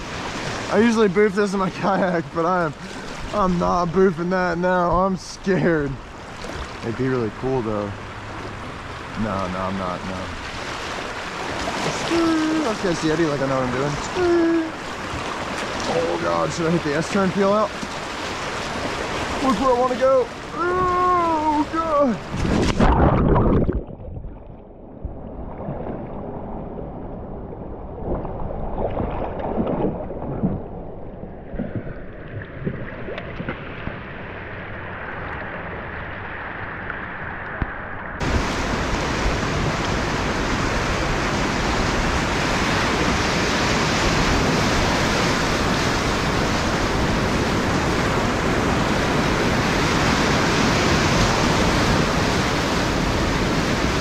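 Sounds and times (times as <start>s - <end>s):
whitewater rapids roaring: 0.0s - 6.0s, 6.9s - 22.4s, 38.2s - 54.0s
water splashes: 0.0s - 54.0s.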